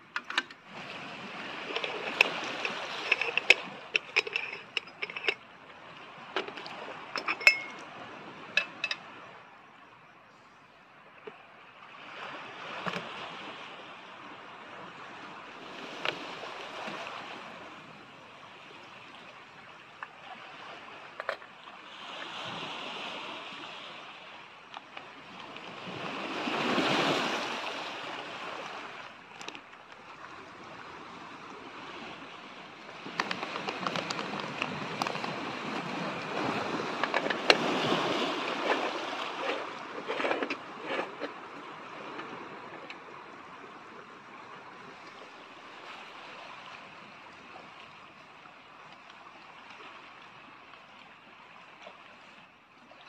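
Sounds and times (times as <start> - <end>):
waves on pebbly beach: 0.0 - 10.1, 10.7 - 53.0
metal clicks and clinks: 0.1 - 0.6, 1.7 - 5.4, 6.4 - 7.9, 8.6 - 9.1.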